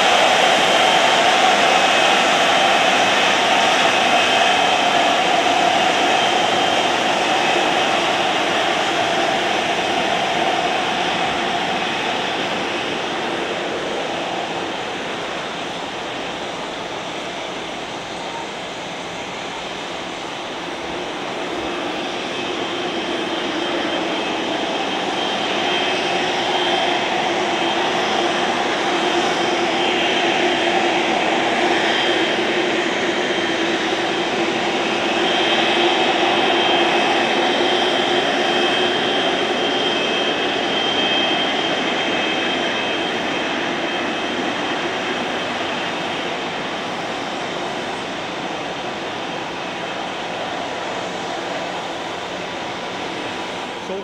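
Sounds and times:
airliner engines passing: 0.0s - 54.0s.

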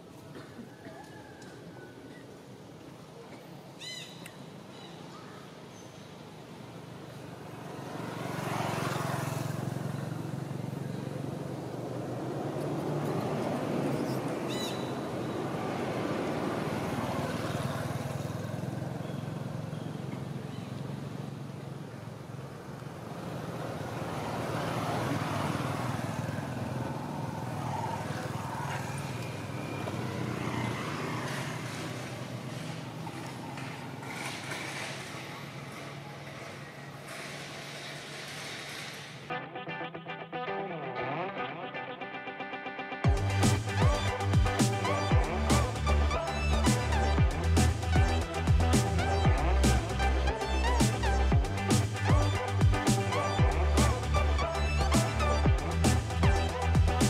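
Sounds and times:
vehicle engine approaching: 7.4s - 14.6s, 15.2s - 38.9s, 43.1s - 57.0s.

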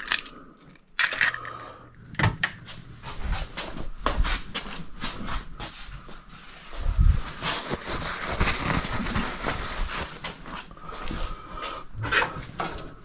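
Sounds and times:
eggshells crackling: 0.0s - 1.6s.

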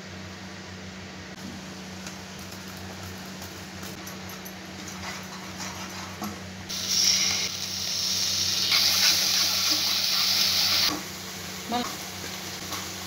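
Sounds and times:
spices sizzling in a pan: 6.7s - 13.0s.

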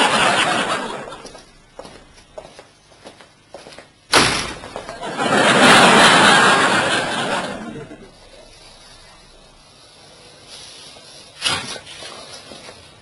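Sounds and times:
audience laughter: 0.0s - 1.5s, 4.9s - 8.3s.

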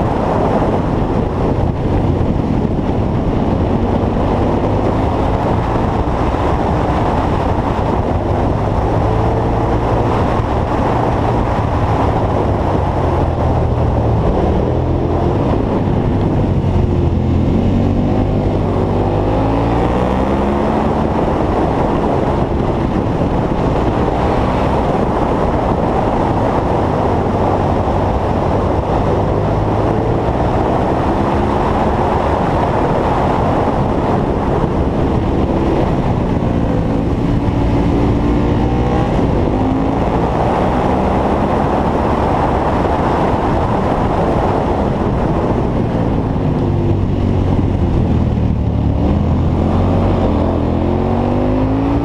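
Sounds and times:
motorcycle engine running: 0.0s - 19.4s
wind rush on microphone: 0.0s - 52.0s.

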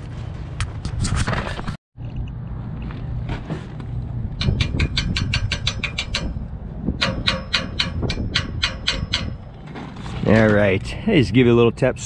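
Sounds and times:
steady low hum: 0.0s - 12.0s
rapid metallic tapping: 4.4s - 6.4s.

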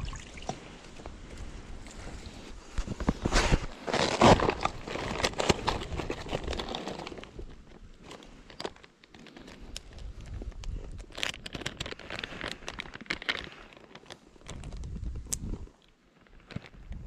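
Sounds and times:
small clicks and crackles: 3.8s - 17.0s
plastic packet crinkling: 3.9s - 7.5s, 11.0s - 14.8s.

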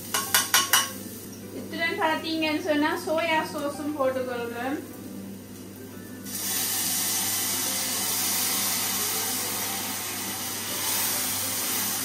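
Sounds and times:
sauce sizzling in hot oil: 0.0s - 1.6s, 4.8s - 12.0s.

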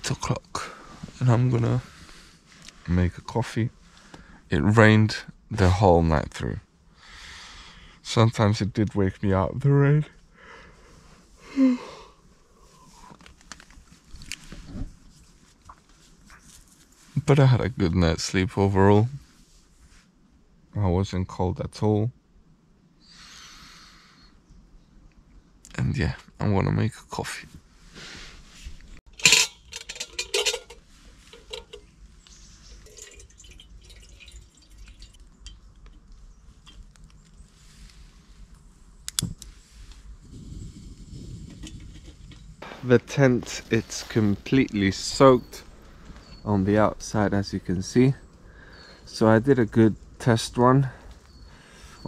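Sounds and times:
faint rustling: 12.3s - 17.9s, 27.4s - 52.0s
metal cookware clinking: 29.1s - 31.8s
water pouring into a pot: 32.7s - 35.5s.

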